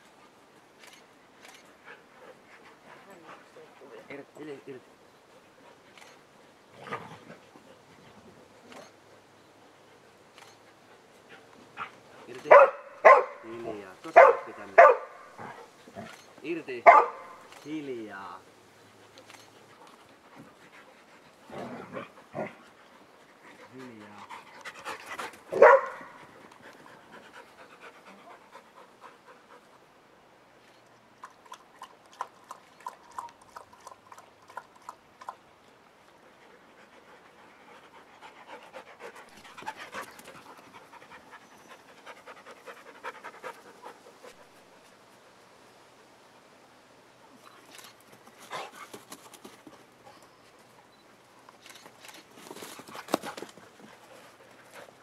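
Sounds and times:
dog panting hard: 0:18.9 - 0:29.9, 0:36.2 - 0:44.9, 0:48.3 - 0:49.8, 0:52.5 - 0:55.0.

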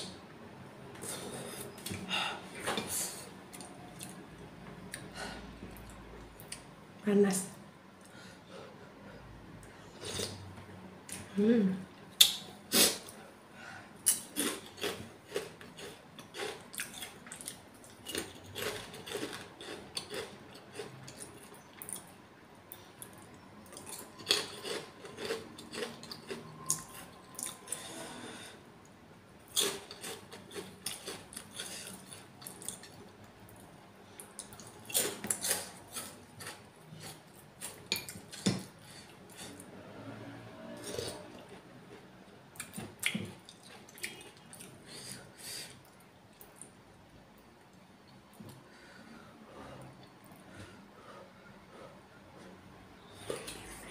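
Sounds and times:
chewing: 0:14.0 - 0:22.1, 0:22.7 - 0:27.9, 0:29.5 - 0:33.6.

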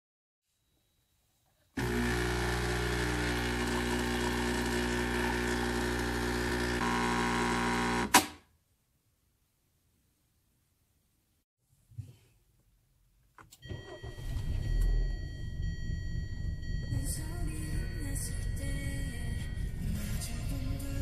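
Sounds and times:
coffee machine pump buzzing: 0:01.8 - 0:08.3.

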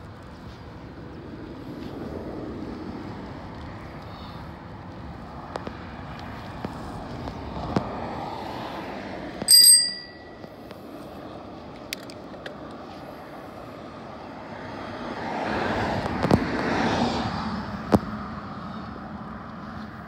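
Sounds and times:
tyre and wind noise: 0:00.0 - 0:11.0
bicycle bell ringing: 0:09.5 - 0:10.6.

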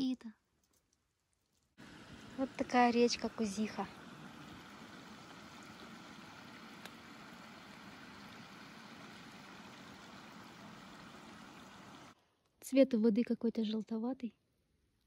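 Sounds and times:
river water babbling: 0:01.8 - 0:12.2.

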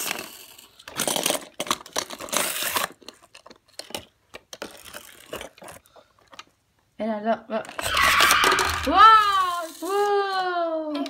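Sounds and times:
toy cars rolling on plastic: 0:00.0 - 0:06.5, 0:07.5 - 0:11.0.

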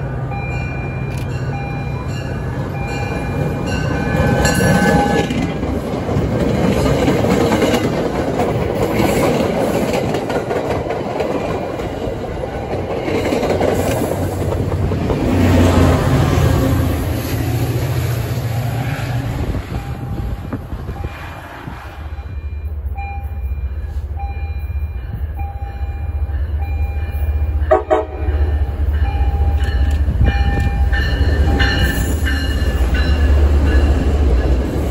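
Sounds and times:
crossing bell dinging: 0:00.0 - 0:05.6, 0:12.4 - 0:13.4, 0:19.7 - 0:21.2, 0:22.1 - 0:34.9
diesel locomotive engine: 0:00.0 - 0:34.9
train wheels clacking over rails: 0:02.2 - 0:19.0.

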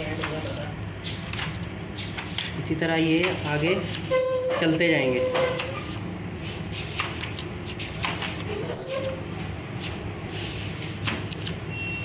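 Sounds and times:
book pages turning: 0:09.7 - 0:11.6.

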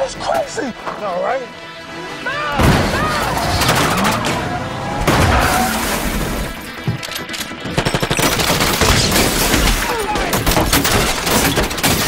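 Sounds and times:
action trailer music: 0:00.0 - 0:12.0
crashes and shattering impacts: 0:02.6 - 0:12.0
rapid gunfire: 0:07.6 - 0:12.0.

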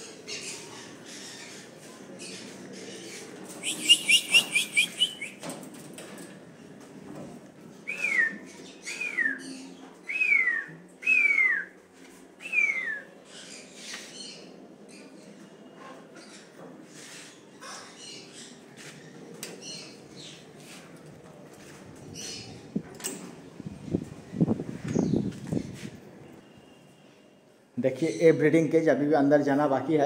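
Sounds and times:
parrots chirping: 0:03.6 - 0:05.4.

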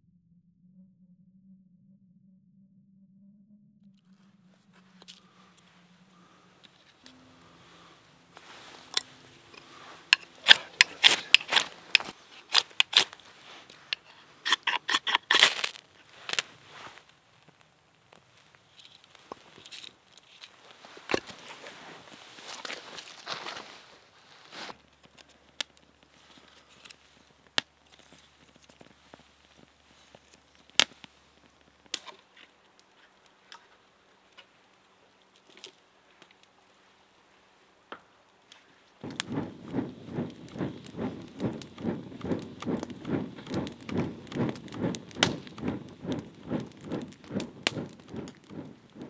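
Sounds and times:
kindling fire crackling: 0:04.1 - 0:49.0
rhythmic soft strokes: 0:04.2 - 0:14.9, 0:39.0 - 0:49.0.

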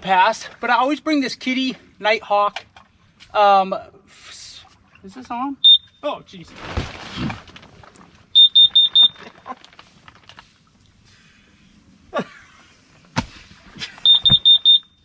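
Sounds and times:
high-pitched alarm beeps: 0:05.6 - 0:06.1, 0:08.4 - 0:09.2, 0:14.0 - 0:15.0.

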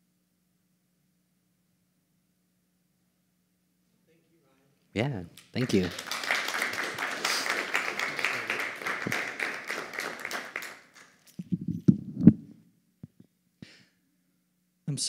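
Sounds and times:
audience applauding: 0:05.4 - 0:11.2.

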